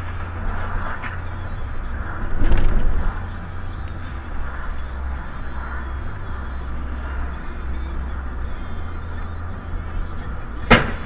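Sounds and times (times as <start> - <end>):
car road noise rumble: 0.0 - 11.0
tyres thumping over tracks: 10.6 - 11.0.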